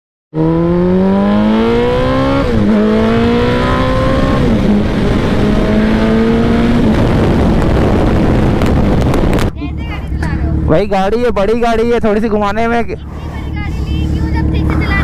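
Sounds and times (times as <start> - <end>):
motorcycle engine accelerating: 0.3 - 15.0
wind noise: 1.3 - 10.7.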